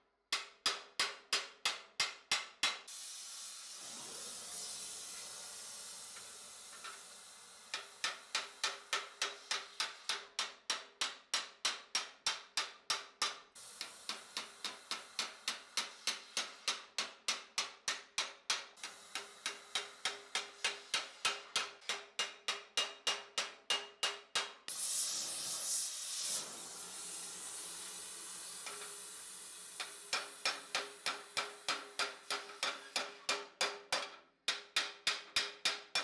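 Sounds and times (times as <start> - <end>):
gas torch hissing: 2.9 - 9.8, 13.6 - 16.7, 18.8 - 21.3, 24.7 - 33.0
hammer striking metal: 13.8 - 24.6, 29.8 - 36.0.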